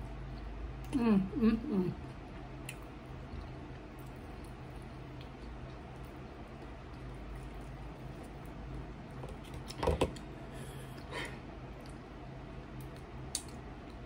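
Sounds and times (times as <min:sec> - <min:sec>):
low room hum: 0:00.0 - 0:14.0
chewing and lip smacks: 0:02.0 - 0:09.7, 0:11.7 - 0:14.0.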